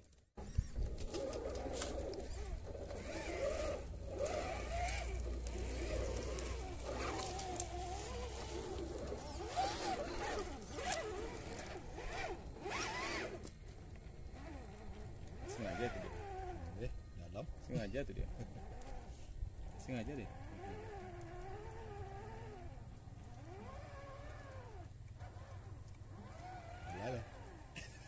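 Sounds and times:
electric motor whining: 0:00.4 - 0:28.0.

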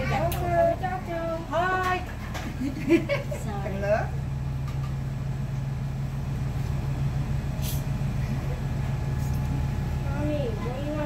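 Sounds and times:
kitchen equipment humming: 0:00.0 - 0:11.0
brief hiss: 0:07.6 - 0:07.9.

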